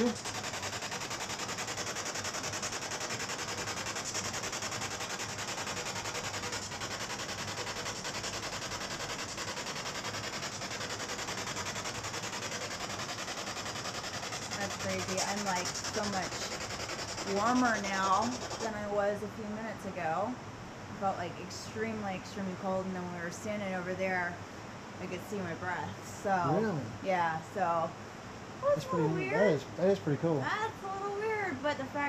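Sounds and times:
fluttering radio static: 0:00.0 - 0:19.1.

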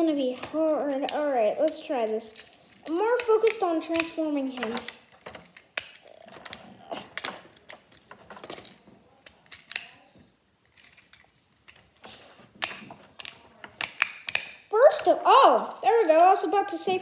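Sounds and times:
plastic toy clicks and rattles: 0:00.0 - 0:10.0, 0:12.6 - 0:15.1.

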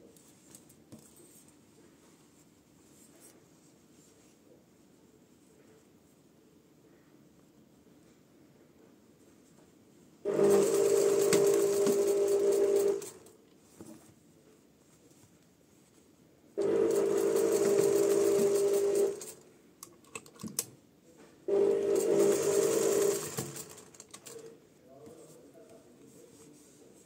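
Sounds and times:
sewing machine stitching: 0:10.3 - 0:13.3, 0:16.6 - 0:19.4, 0:21.5 - 0:24.5.

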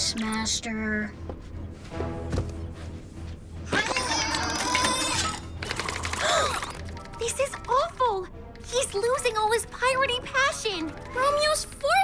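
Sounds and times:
background music: 0:00.0 - 0:12.0.

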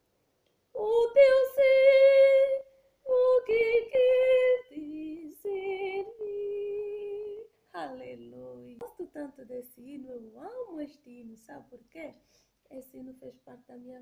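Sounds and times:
woman singing hymn unaccompanied: 0:00.8 - 0:08.8.

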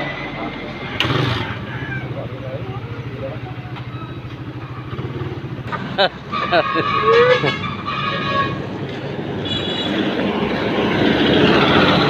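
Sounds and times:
heavy truck engine and tyres: 0:00.0 - 0:12.0
vehicle horn: 0:06.3 - 0:08.8, 0:09.4 - 0:10.2.

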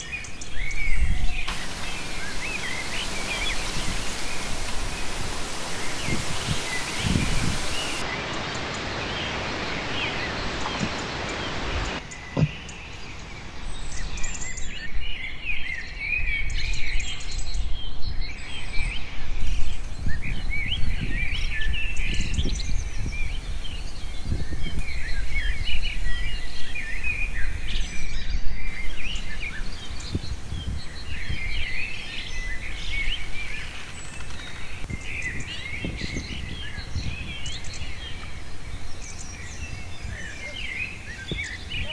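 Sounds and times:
small birds chirping: 0:00.0 - 0:14.8, 0:19.4 - 0:41.9
outdoor background noise: 0:00.0 - 0:41.9
hiss: 0:01.5 - 0:08.0, 0:28.7 - 0:34.8.

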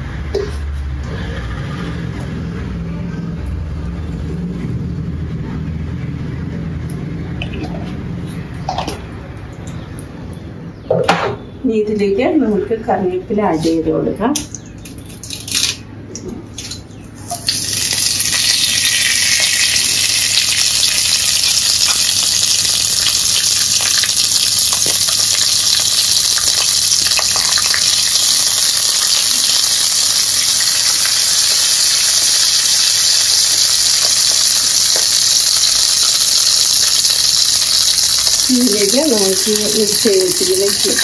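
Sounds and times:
leaves sizzling in hot oil: 0:17.3 - 0:41.0.

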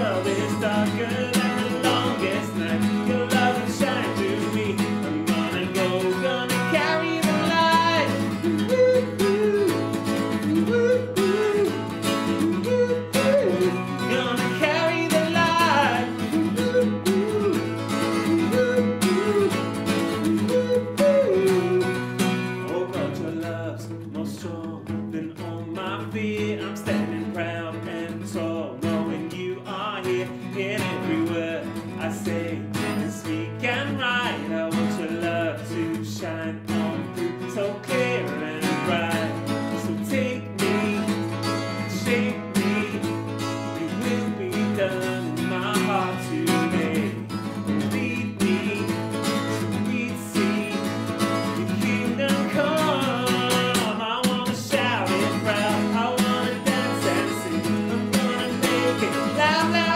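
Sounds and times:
person singing worship song: 0:00.0 - 0:09.9, 0:54.6 - 0:59.9
acoustic guitar strumming: 0:00.0 - 0:59.9.

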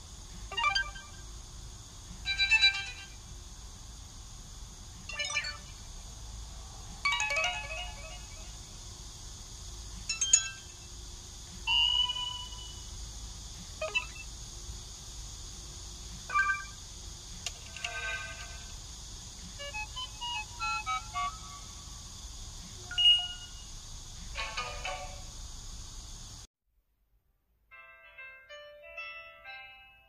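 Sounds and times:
phone notification chimes: 0:05.1 - 0:05.6.

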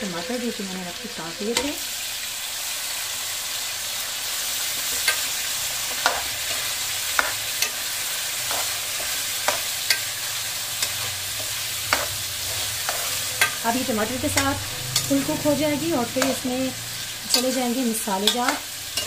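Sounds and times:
food sizzling in hot oil: 0:00.0 - 0:19.0
metal spoon clinking against pan: 0:08.5 - 0:10.2, 0:12.8 - 0:13.6, 0:17.3 - 0:19.0.

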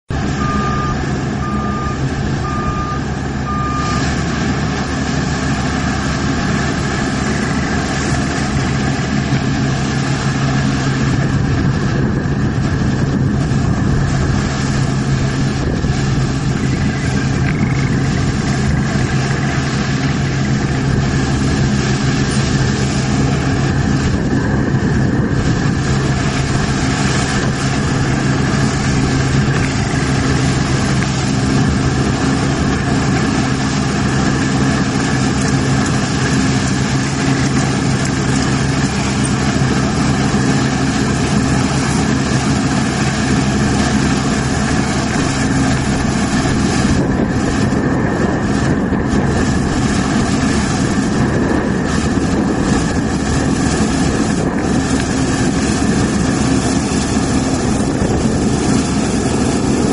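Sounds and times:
combine harvester engine drone: 0:00.0 - 0:59.9
short beeps: 0:00.4 - 0:04.0.

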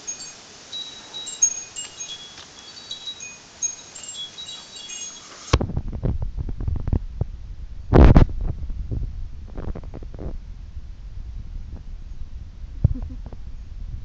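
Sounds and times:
wind chimes tinkling: 0:00.0 - 0:05.6
low rumbling with knocks: 0:05.6 - 0:14.0.

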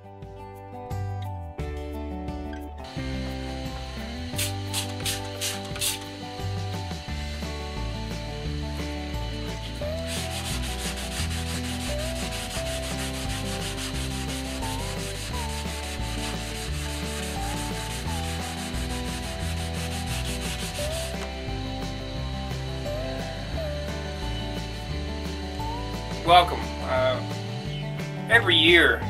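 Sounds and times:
background music with bass line: 0:00.0 - 0:29.0
sandpaper rubbing: 0:03.8 - 0:06.3, 0:09.3 - 0:21.4.

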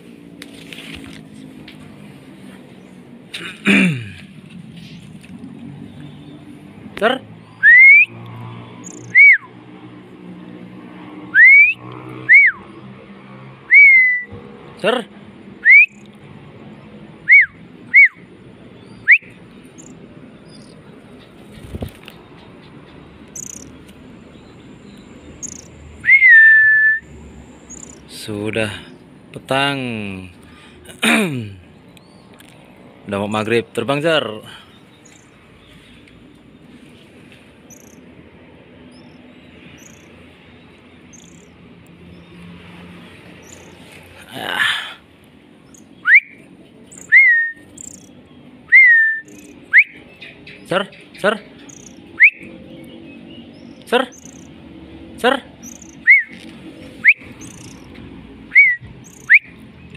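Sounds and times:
person whistling: 0:07.6 - 0:08.1, 0:09.2 - 0:09.4, 0:11.4 - 0:12.6, 0:13.7 - 0:14.3, 0:15.6 - 0:16.0, 0:26.1 - 0:27.0, 0:47.0 - 0:47.6, 0:48.7 - 0:49.9, 0:56.1 - 0:56.3, 0:58.5 - 0:59.5.

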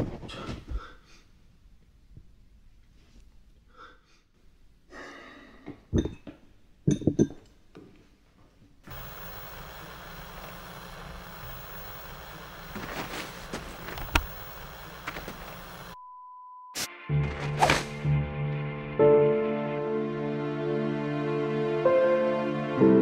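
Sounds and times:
heavy frightened breathing: 0:04.9 - 0:05.7
electrical buzz with hiss: 0:08.9 - 0:16.0.

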